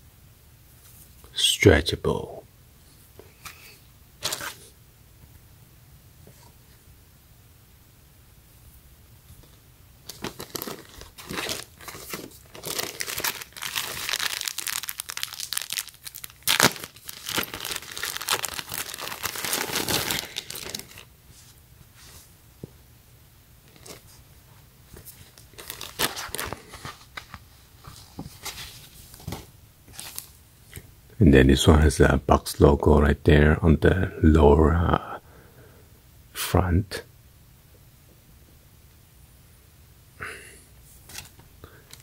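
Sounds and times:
plastic bag crinkling: 10.0 - 21.1, 25.2 - 28.0.

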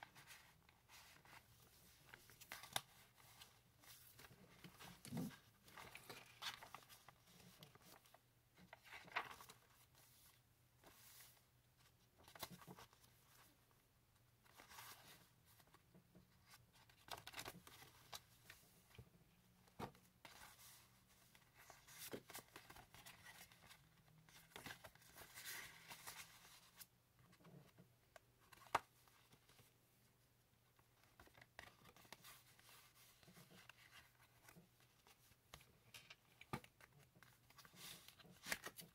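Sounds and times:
paper pages turning: 0.0 - 11.4, 20.2 - 26.9, 31.0 - 38.9.

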